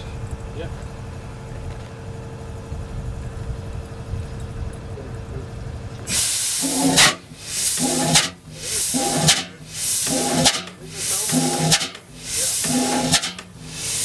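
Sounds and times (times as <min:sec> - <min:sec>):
low steady hum: 0:00.0 - 0:14.0
engine hissing chuffs: 0:06.0 - 0:14.0.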